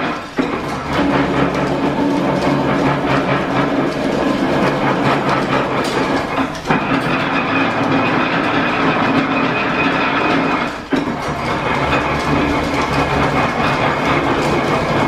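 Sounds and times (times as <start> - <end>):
metal planer running: 0.0 - 15.0.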